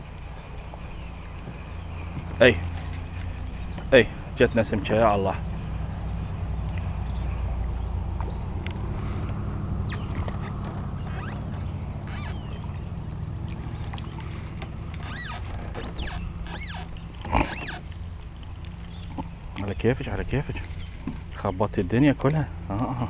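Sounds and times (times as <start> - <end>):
bird calls: 0.0 - 23.0
steady low rumble: 0.0 - 23.0
fish splashing into water: 5.5 - 19.6.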